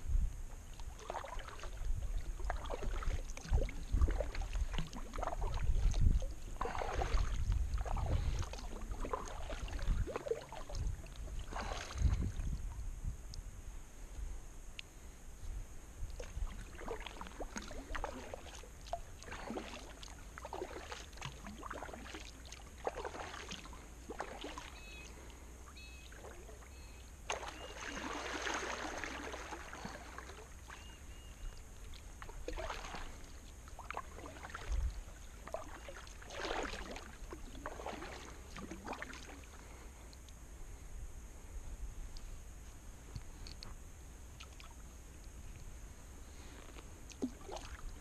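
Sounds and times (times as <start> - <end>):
kayak paddle splashing in water: 0.7 - 12.5, 16.1 - 39.9, 46.4 - 48.0.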